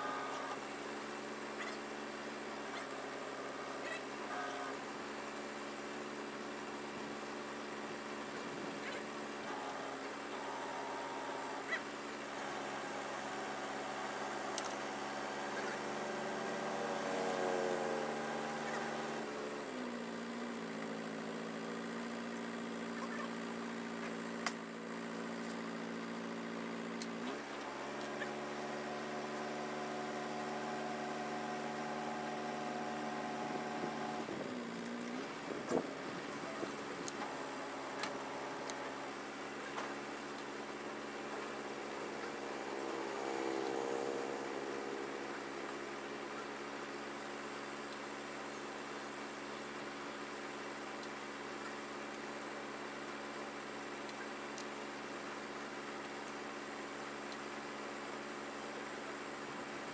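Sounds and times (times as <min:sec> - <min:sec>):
truck engine running: 0:00.0 - 0:47.9.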